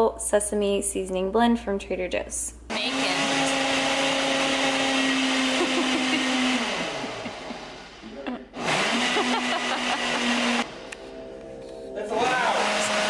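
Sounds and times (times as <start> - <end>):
blender motor running: 2.7 - 10.8, 12.2 - 13.0.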